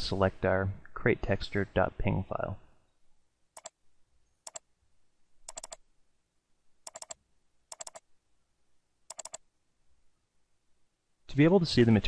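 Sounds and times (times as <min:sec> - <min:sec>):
mouse buttons clicking: 0:03.6 - 0:03.8, 0:04.4 - 0:04.6, 0:05.5 - 0:05.8, 0:06.9 - 0:08.1, 0:09.1 - 0:09.4.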